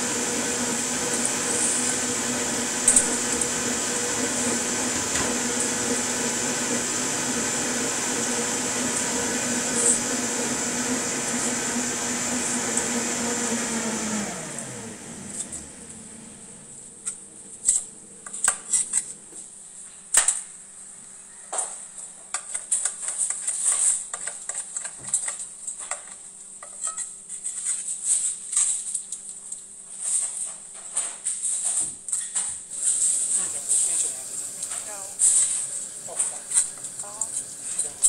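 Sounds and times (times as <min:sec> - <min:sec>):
motor winding down: 0:00.0 - 0:19.2.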